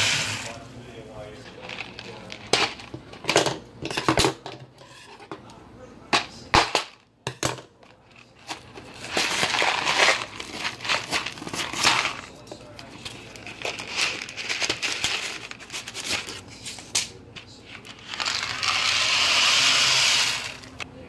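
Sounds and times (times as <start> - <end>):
cardboard crinkling and tearing: 8.4 - 16.5.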